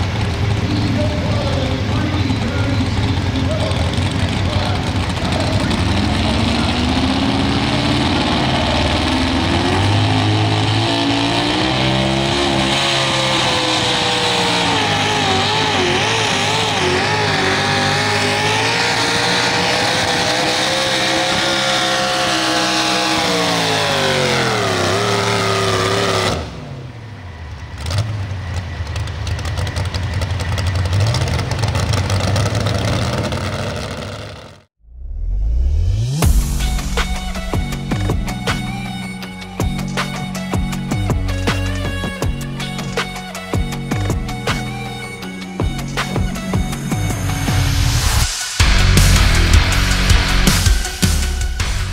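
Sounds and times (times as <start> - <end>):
truck engine at full throttle: 0.0 - 51.9.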